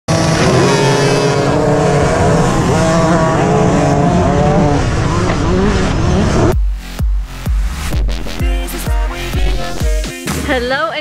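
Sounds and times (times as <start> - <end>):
dirt bikes revving: 0.1 - 6.6.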